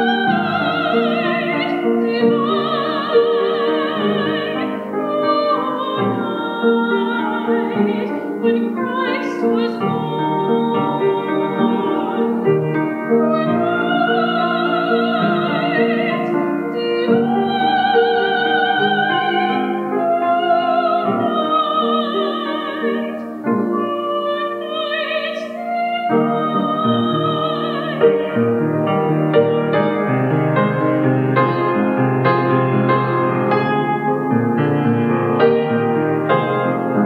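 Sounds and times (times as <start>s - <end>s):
woman singing operatically: 0.0s - 28.5s
grand piano: 0.0s - 37.0s.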